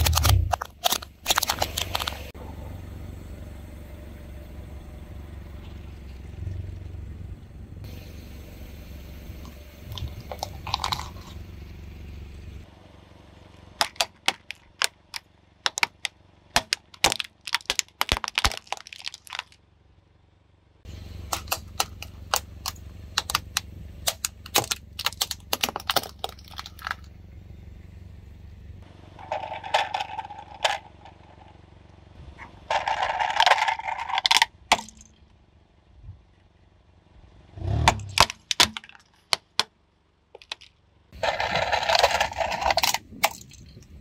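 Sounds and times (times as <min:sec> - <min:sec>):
sharp pops and cracks: 0:00.0 - 0:02.3, 0:13.8 - 0:19.6, 0:21.3 - 0:27.1, 0:37.8 - 0:39.7
grinding crunches: 0:00.0 - 0:02.4, 0:09.4 - 0:11.8, 0:13.8 - 0:19.6, 0:20.9 - 0:27.2, 0:28.8 - 0:35.4, 0:37.5 - 0:39.6, 0:40.3 - 0:44.0
low hum: 0:00.0 - 0:17.0, 0:19.3 - 0:38.2.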